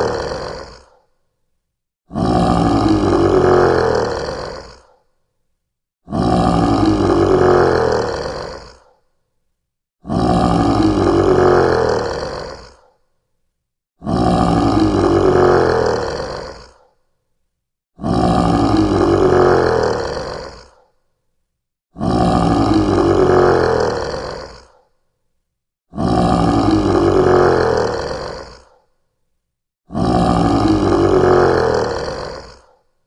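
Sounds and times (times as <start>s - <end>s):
lion roaring: 0.0s - 1.0s, 2.1s - 5.0s, 6.0s - 8.9s, 10.0s - 12.9s, 14.0s - 16.8s, 18.0s - 20.9s, 21.9s - 24.8s, 25.9s - 28.7s, 29.9s - 32.8s.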